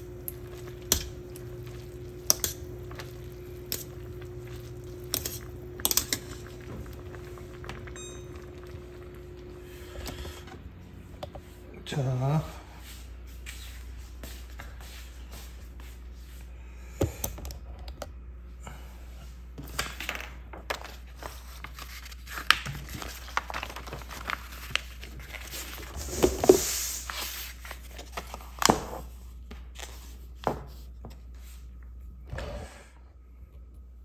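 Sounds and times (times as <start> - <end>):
paper napkin crinkling: 20.8 - 28.6.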